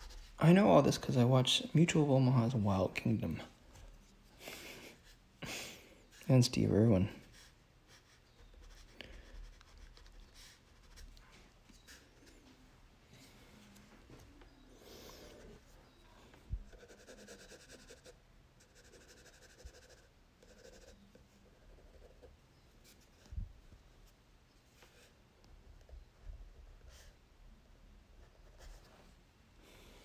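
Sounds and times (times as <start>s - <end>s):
crayon scratching on paper: 7.9s - 11.2s, 16.6s - 21.2s.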